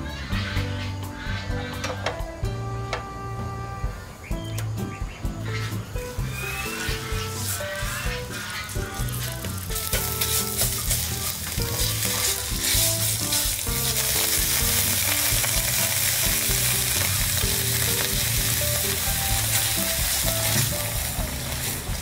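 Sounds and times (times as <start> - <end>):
curry paste sizzling in oil: 6.0 - 22.0
spatula scraping pan: 6.2 - 21.9.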